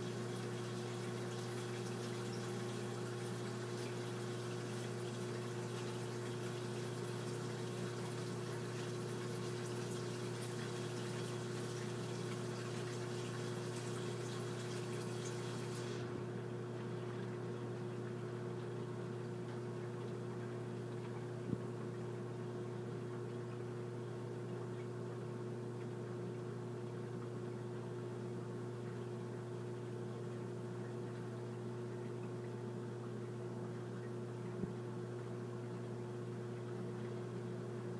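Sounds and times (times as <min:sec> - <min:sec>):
water hissing and trickling: 0:00.0 - 0:16.2
aquarium pump humming: 0:00.0 - 0:37.9.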